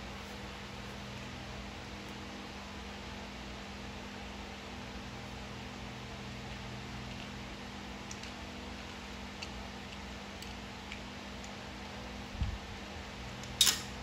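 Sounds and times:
steady hum: 0.0 - 14.0.

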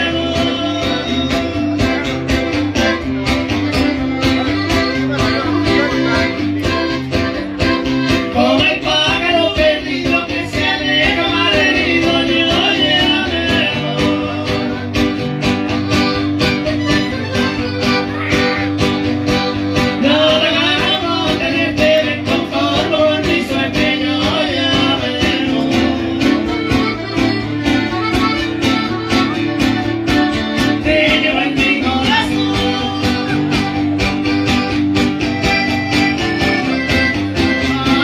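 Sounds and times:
person singing: 0.0 - 2.4, 4.2 - 15.2, 19.8 - 34.0, 36.6 - 38.0
guitar with steady beat: 0.0 - 38.0
live band music over speakers: 0.0 - 38.0.

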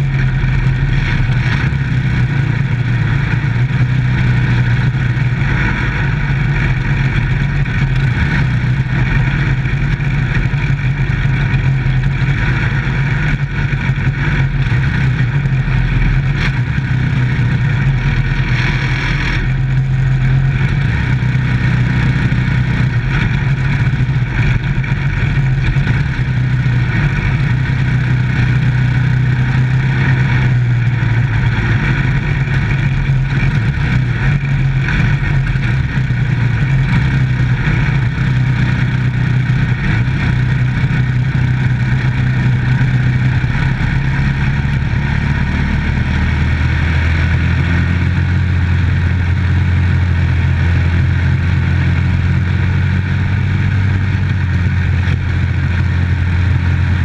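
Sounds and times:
race car engine running: 0.0 - 57.0.

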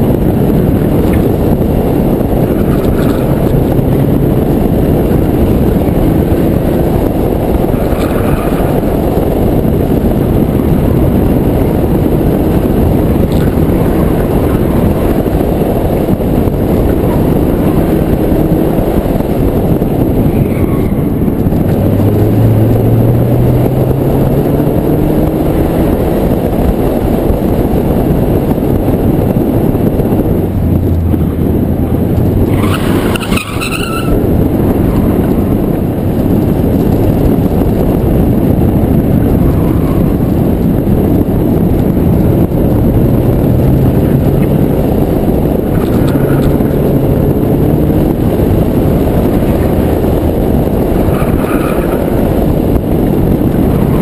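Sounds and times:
car engine revving: 0.0 - 54.0
wind and road noise: 0.0 - 54.0
tyre squeal: 32.5 - 34.2.

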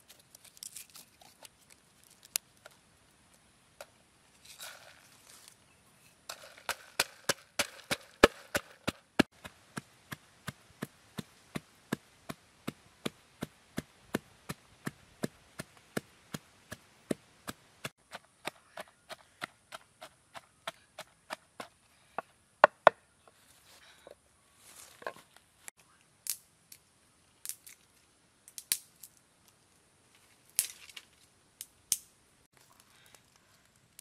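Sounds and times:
pestle pounding in wooden mortar: 6.6 - 9.5.

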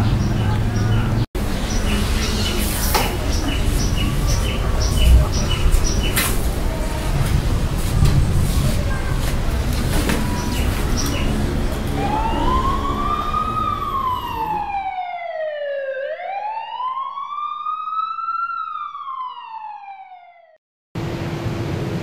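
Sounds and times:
wailing siren: 11.4 - 20.6.

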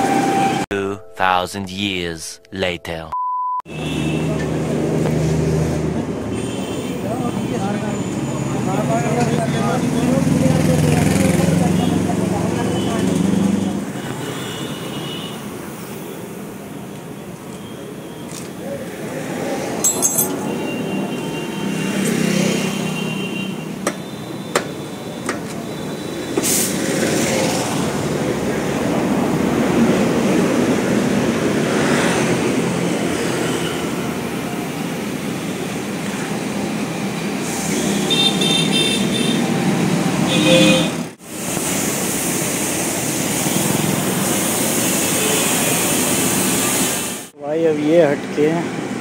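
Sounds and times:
traffic and street noise: 0.0 - 49.0
short high beeps: 0.7 - 3.6.

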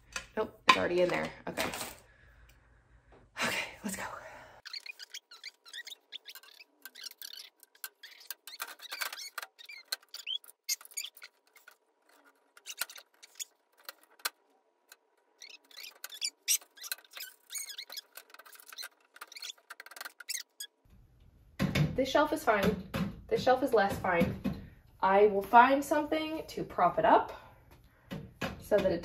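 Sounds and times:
glass panes squeaking: 4.6 - 14.4, 15.0 - 20.8.

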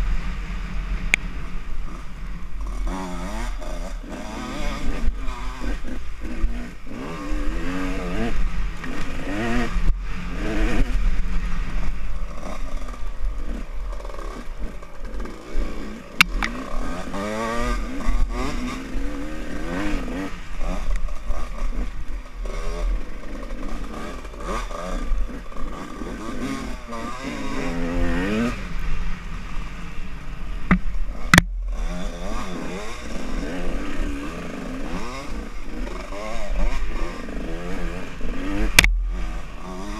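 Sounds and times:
dirt bike engine revving: 0.0 - 39.9
rattling over bumpy ground: 11.6 - 27.1.

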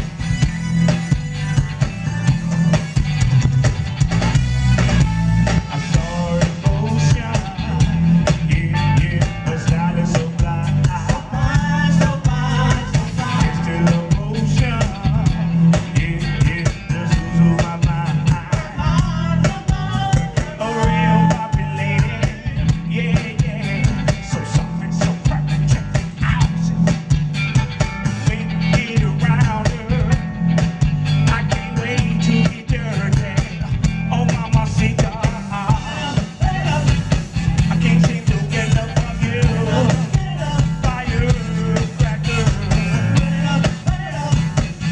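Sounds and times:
funk band playing: 0.0 - 44.9
man and woman singing: 5.9 - 26.6, 31.3 - 44.9.

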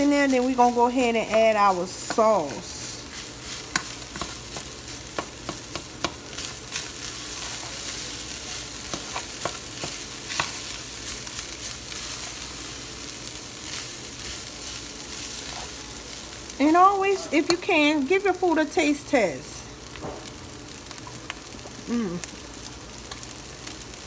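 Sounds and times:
food sizzling in skillet: 0.0 - 24.0
spatula scraping pan: 1.3 - 10.8.

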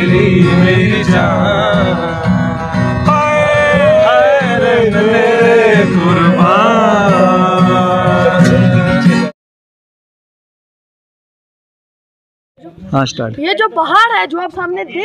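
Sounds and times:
acoustic guitar strumming: 0.0 - 9.3
men singing along: 0.0 - 9.3
young man singing: 0.0 - 9.3.

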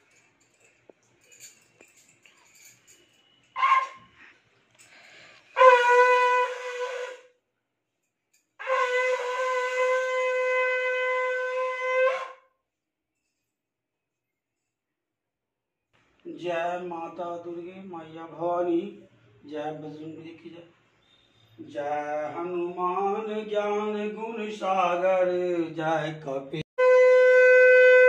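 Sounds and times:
conch shell horn blasts: 5.5 - 7.3, 8.6 - 12.4, 26.8 - 28.0.

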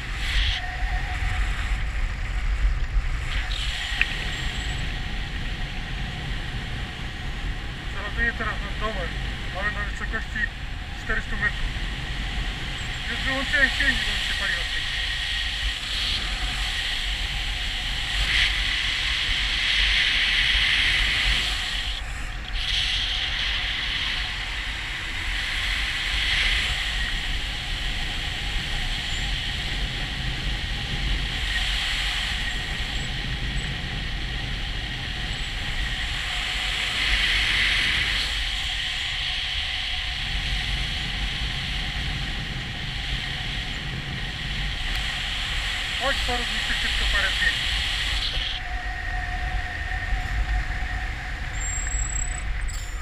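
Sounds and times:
wind on camera microphone: 0.0 - 53.0.

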